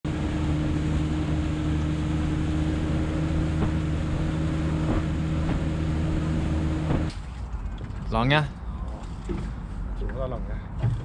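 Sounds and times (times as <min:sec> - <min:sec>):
boat engine running steadily: 0:00.0 - 0:07.1.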